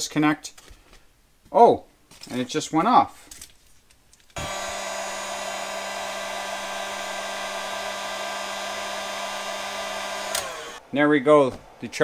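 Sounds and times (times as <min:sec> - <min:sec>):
heat gun blowing air: 0:04.4 - 0:10.8.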